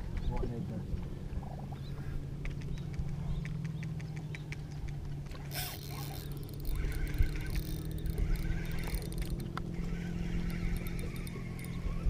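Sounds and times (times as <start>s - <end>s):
boat motor humming: 0.0s - 12.0s
fishing reel ticking: 5.5s - 12.0s.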